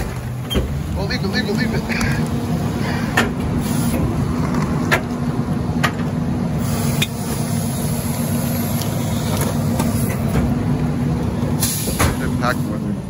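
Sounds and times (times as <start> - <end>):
garbage truck diesel engine: 0.0 - 13.0.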